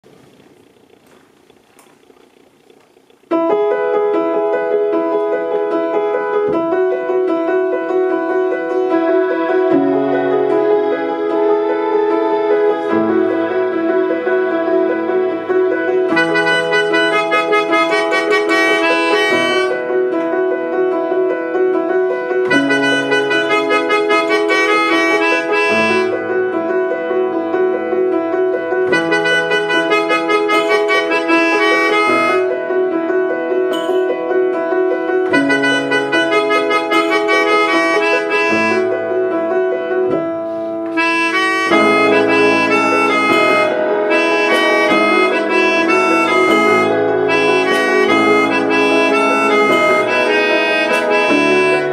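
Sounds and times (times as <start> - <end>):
piano chords: 0.0 - 51.9
keyboard strings: 3.4 - 51.9
melodica melody: 8.2 - 20.2, 22.5 - 27.5, 28.7 - 33.0, 33.7 - 39.4, 40.9 - 51.9
electronic percussion pad: 33.7 - 34.2.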